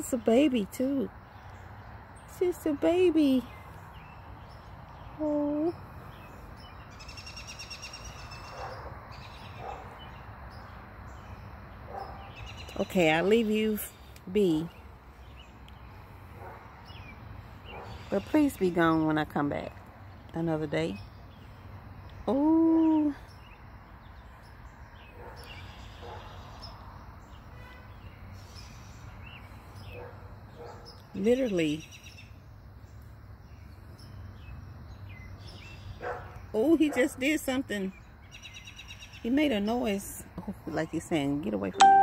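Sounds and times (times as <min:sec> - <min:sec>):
quiet outdoor background: 0:00.0 - 0:42.0
high chirps: 0:41.8 - 0:42.0.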